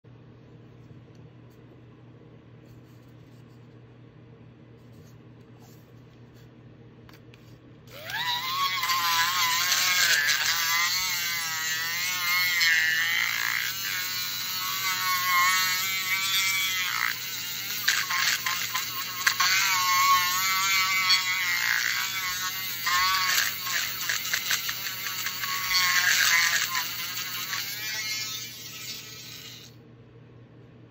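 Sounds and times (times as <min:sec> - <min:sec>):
handheld electric mixer whining: 0:07.9 - 0:29.8.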